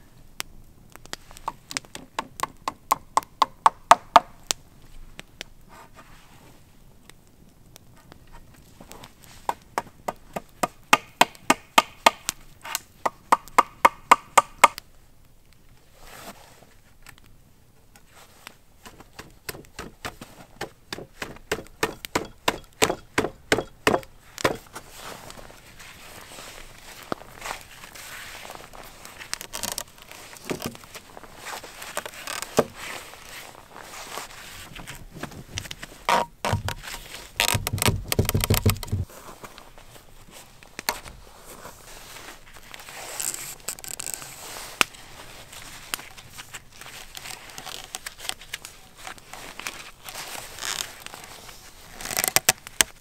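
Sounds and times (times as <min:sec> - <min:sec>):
wood being chopped: 0:01.5 - 0:04.5, 0:09.5 - 0:14.8, 0:18.8 - 0:24.8, 0:36.1 - 0:39.0.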